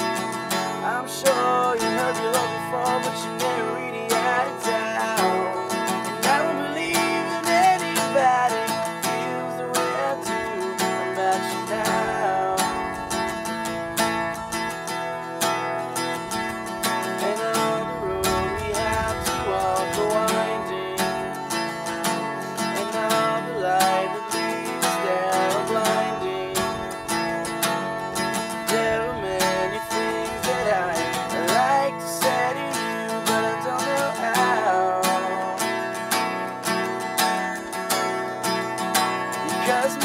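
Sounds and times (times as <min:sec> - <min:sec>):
man singing: 0:00.0 - 0:14.1, 0:16.8 - 0:37.0, 0:39.2 - 0:40.0
acoustic guitar: 0:00.0 - 0:40.0.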